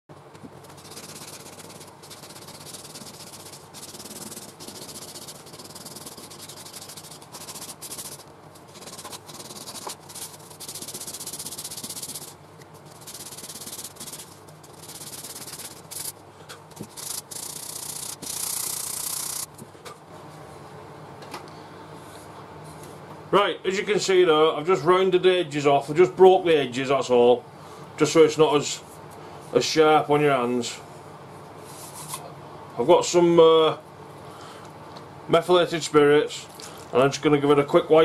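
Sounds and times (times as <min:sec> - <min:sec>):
sandpaper rasping on wood: 0:00.7 - 0:16.1, 0:16.8 - 0:19.5.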